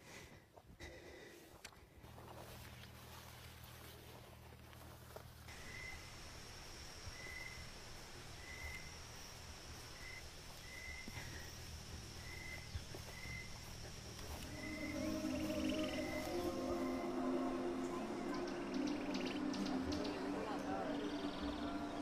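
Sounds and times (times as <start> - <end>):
high-pitched insect drone: 12.2 - 22.0
music: 14.3 - 22.0.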